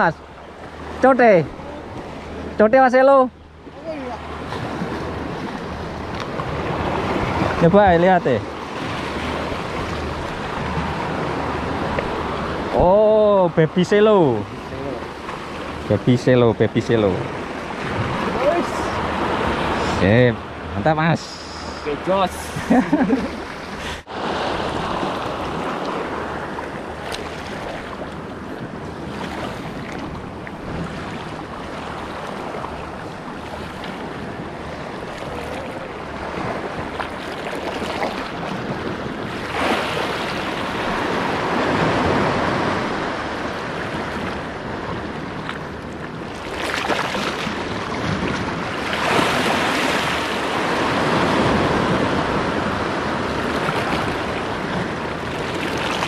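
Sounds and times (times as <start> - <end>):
waves breaking on rocks: 0.0 - 16.3, 17.0 - 20.2, 23.4 - 56.0.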